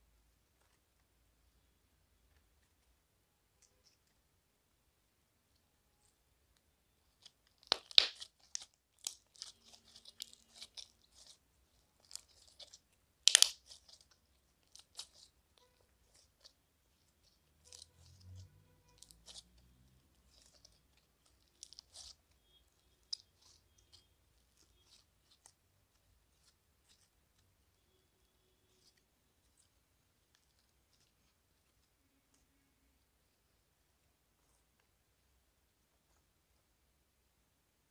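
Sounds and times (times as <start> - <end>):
slime crackling and popping: 7.0 - 31.8.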